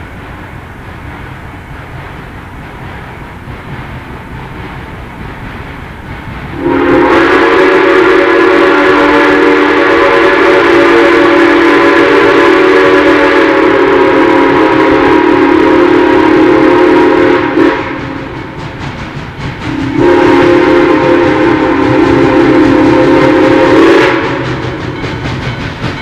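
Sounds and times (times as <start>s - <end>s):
steam whistle chord: 6.5s - 18.5s, 19.7s - 25.3s.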